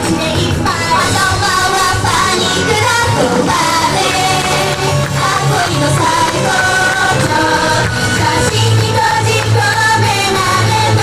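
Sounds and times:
upbeat pop backing music: 0.0 - 11.0
young women singing together: 0.0 - 11.0.

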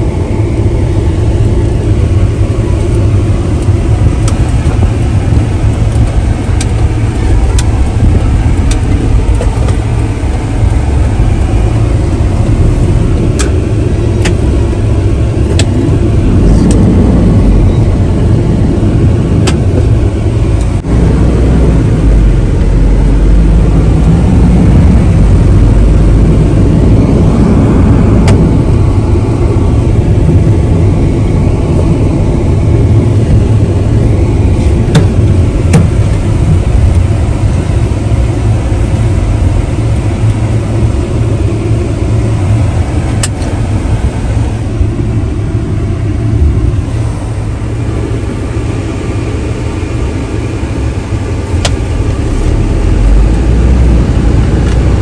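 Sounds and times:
vehicle road and engine rumble: 0.0 - 55.0.

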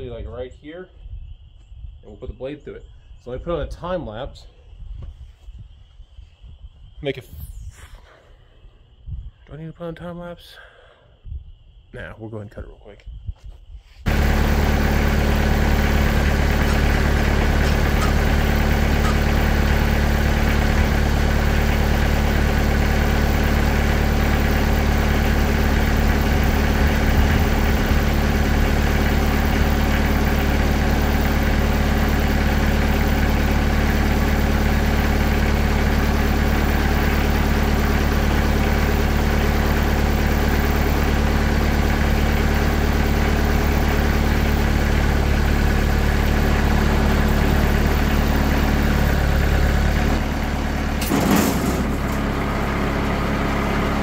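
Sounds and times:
sawmill engine running steadily: 14.0 - 54.0.

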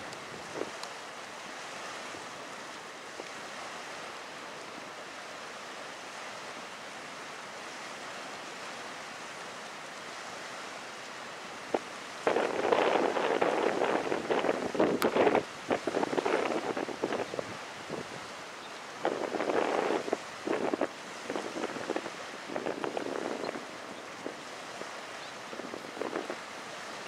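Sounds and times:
wind hiss: 0.0 - 27.0
wind gust buffeting microphone: 11.7 - 18.3, 19.0 - 26.5.

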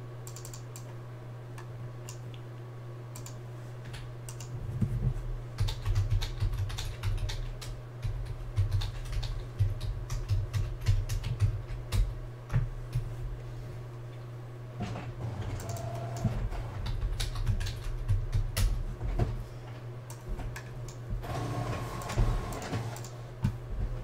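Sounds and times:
steady low hum: 0.0 - 24.0
computer keyboard typing: 0.2 - 0.9, 3.2 - 4.5, 5.6 - 12.1, 15.6 - 18.8, 22.0 - 23.2.

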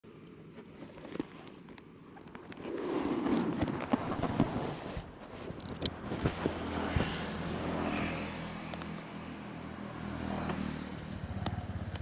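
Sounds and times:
road noise: 0.1 - 12.0
vehicle engine humming: 5.0 - 12.0.

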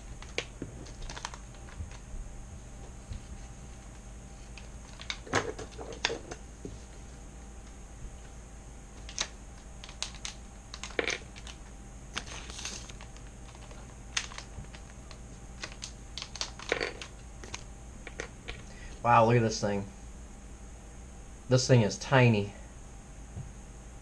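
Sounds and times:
plastic bags crinkling: 0.0 - 2.0, 9.1 - 18.7.

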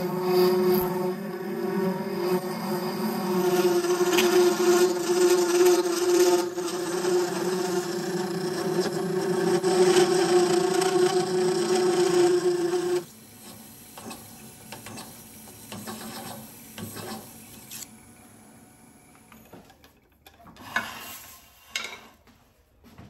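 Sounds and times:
lathe tool whine: 0.0 - 14.2.

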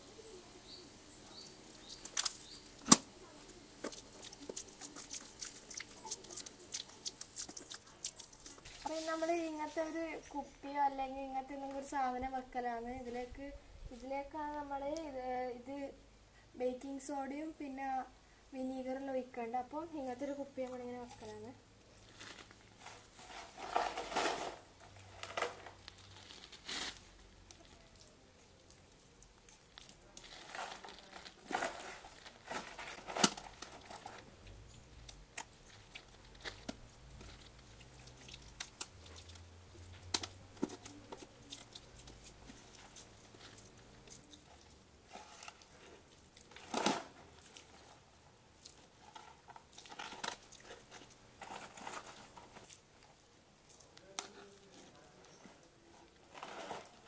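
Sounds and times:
hands squishing wet mud: 1.8 - 3.0, 3.7 - 8.8, 35.0 - 56.3.

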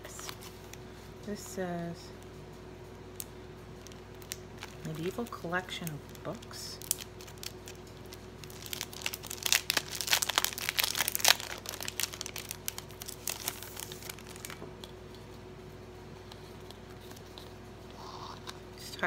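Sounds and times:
plastic bag crinkling: 3.8 - 14.6.

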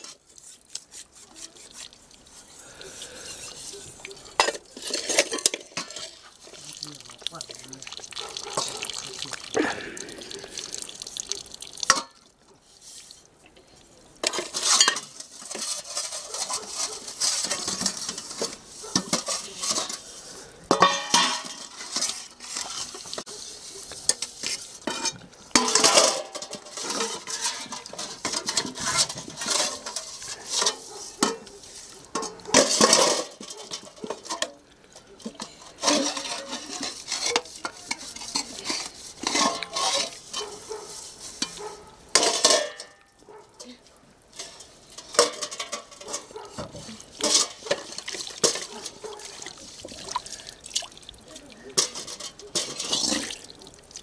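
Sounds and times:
metal spoon scraping in pot: 0.0 - 6.6, 14.2 - 34.5, 35.2 - 43.0, 44.3 - 50.4, 51.8 - 53.4
pots and dishes clinking: 2.6 - 10.8, 11.8 - 12.2, 14.2 - 50.5, 51.6 - 53.5.

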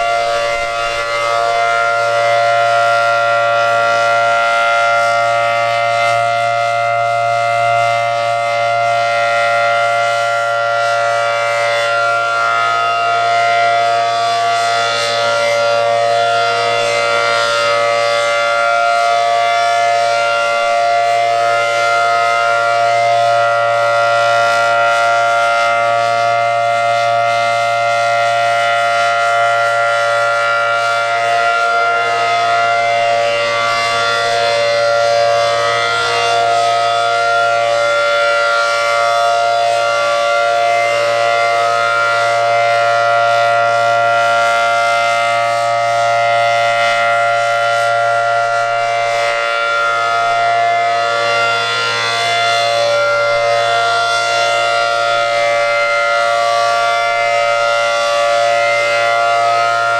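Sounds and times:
rotating warning siren two-tone chord: 0.0 - 59.9.

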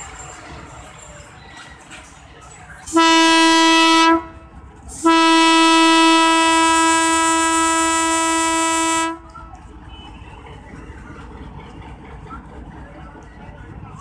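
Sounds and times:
diesel locomotive horn: 2.9 - 10.3.

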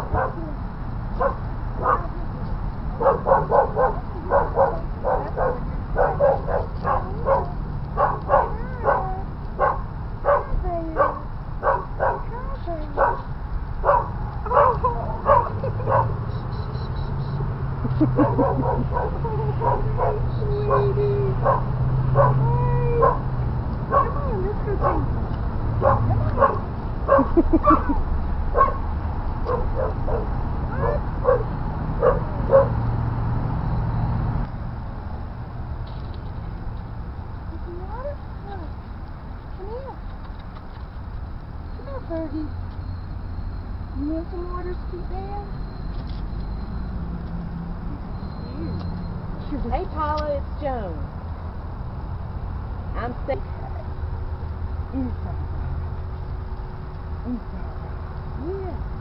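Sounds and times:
dog barking: 0.0 - 0.5, 1.2 - 2.1, 3.0 - 12.4, 13.0 - 16.2, 18.2 - 23.3, 23.9 - 25.1, 25.8 - 28.9, 29.5 - 32.8.

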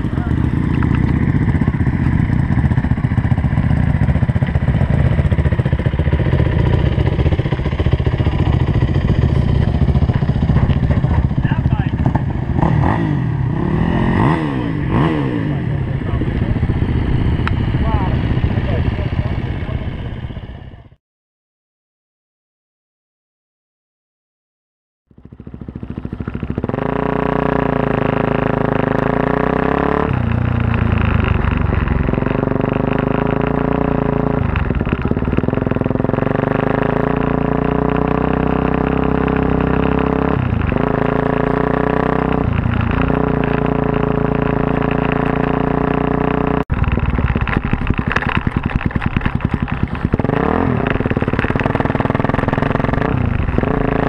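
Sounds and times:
motorcycle engine revving: 0.0 - 21.0, 25.1 - 54.0.

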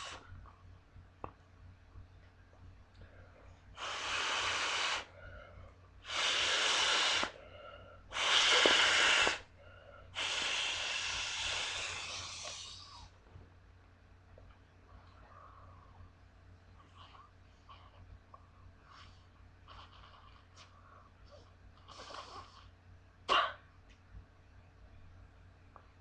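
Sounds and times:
mouth blowing air into ball valve: 0.0 - 0.3, 3.8 - 5.2, 6.0 - 7.5, 8.1 - 9.5, 10.1 - 13.1.

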